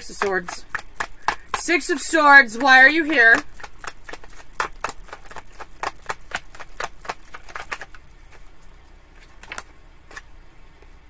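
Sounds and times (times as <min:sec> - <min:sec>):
cards shuffling: 0:00.0 - 0:10.3.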